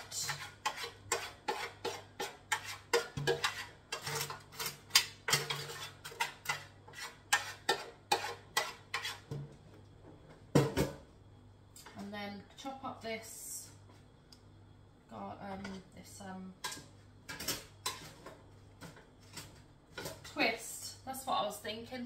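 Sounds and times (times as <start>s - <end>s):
spoon scraping a foil bowl: 0.0s - 9.3s, 16.6s - 18.3s.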